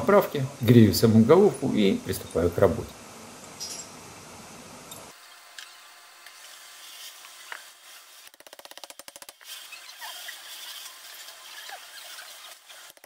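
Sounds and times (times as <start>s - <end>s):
faint steady hiss: 0.0s - 5.5s.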